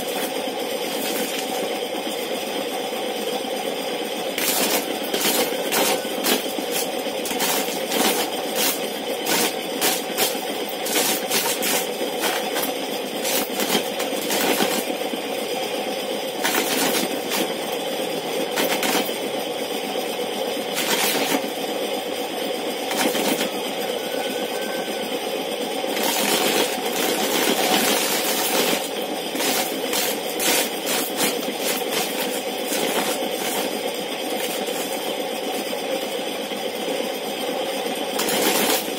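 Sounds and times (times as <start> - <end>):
motor hum: 0.0 - 35.6
corn kernels clattering: 4.4 - 14.9, 16.4 - 17.6, 18.6 - 19.1, 25.9 - 35.0, 38.2 - 38.9.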